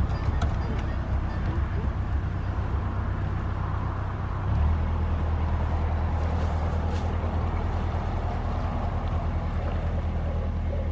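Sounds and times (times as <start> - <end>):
diesel boat engine chugging: 0.0 - 6.0.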